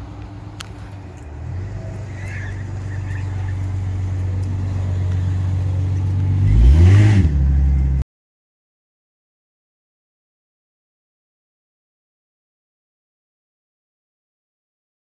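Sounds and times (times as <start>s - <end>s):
car engine idling: 0.0s - 8.0s
car engine revving: 0.0s - 8.0s.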